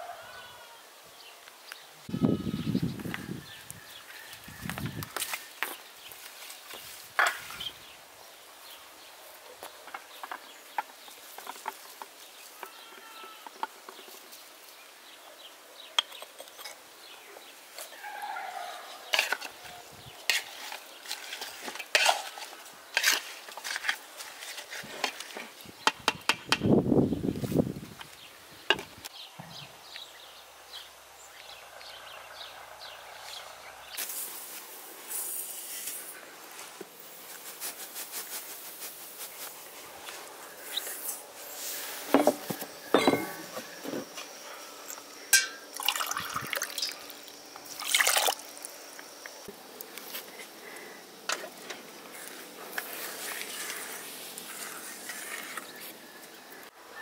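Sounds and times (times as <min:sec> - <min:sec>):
wooden spoon knocking metal pot: 0:42.2 - 0:43.7
sugar pouring into glass: 0:45.8 - 0:47.0.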